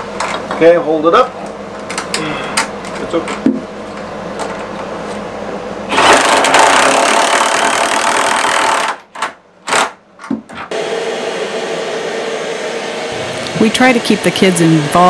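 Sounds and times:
cordless drill motor running: 5.9s - 9.0s.

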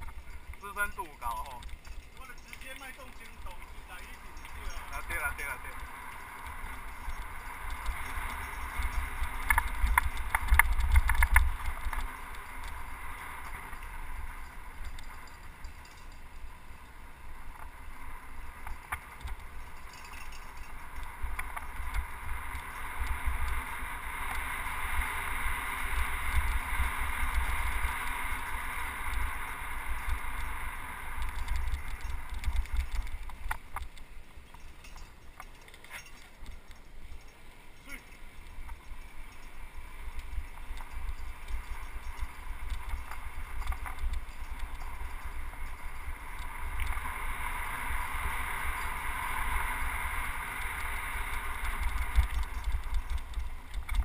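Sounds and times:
wind rumbling on microphone: 0.0s - 54.0s
bike tyres hissing on road: 20.7s - 33.8s, 44.4s - 53.7s.

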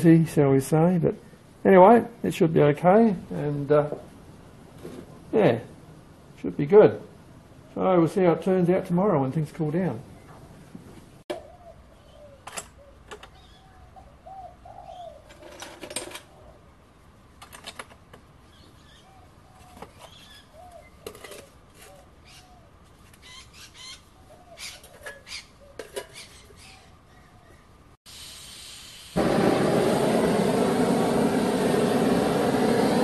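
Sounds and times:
birds calling: 11.3s - 15.5s, 18.4s - 27.8s.

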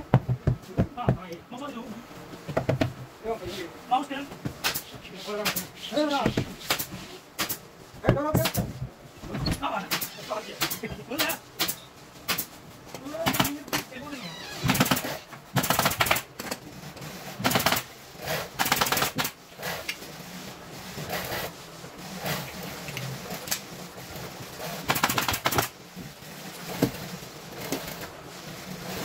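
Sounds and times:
staple guns firing: 24.9s - 25.7s.

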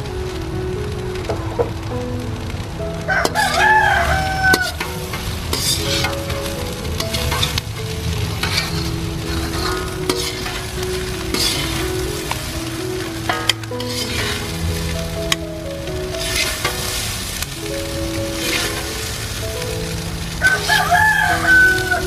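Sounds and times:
food sizzling: 0.0s - 22.0s
rooster crowing: 3.1s - 4.8s, 20.4s - 22.0s
metal utensil scraping a wok: 4.5s - 15.2s, 16.2s - 17.5s, 18.3s - 19.4s.

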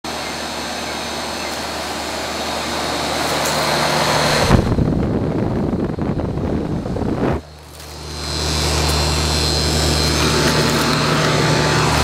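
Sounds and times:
condenser fan whooshing: 0.1s - 12.0s
faint compressor hum: 0.1s - 12.0s
air buffeting microphone: 1.7s - 12.0s.

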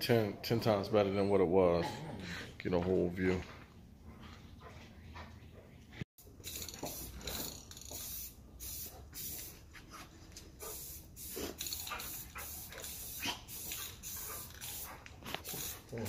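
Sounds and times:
spray paint can hissing: 6.4s - 9.6s, 10.6s - 16.0s.

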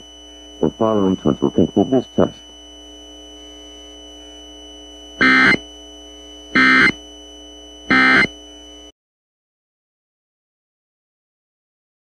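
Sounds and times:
faint steady hum: 0.0s - 8.9s
digital data code bursts: 5.2s - 5.6s, 6.6s - 7.0s, 7.9s - 8.3s.

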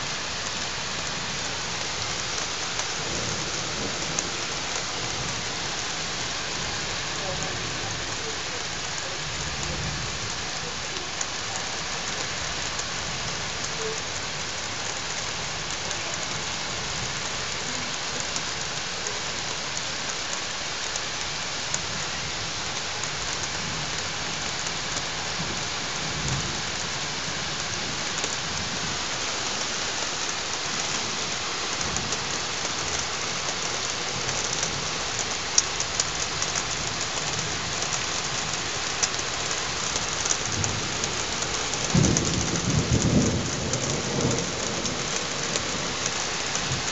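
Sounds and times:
heavy rain falling: 0.0s - 46.9s
raindrops ticking nearby: 0.0s - 46.9s
thunder rumbling: 40.4s - 46.9s.

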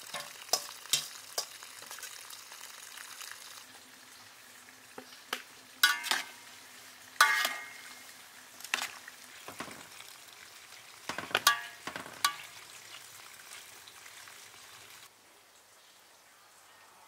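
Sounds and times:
faint sizzling hiss: 0.0s - 17.0s
metal spoon clinking on pot: 5.8s - 6.4s, 7.2s - 7.9s, 11.1s - 12.5s.

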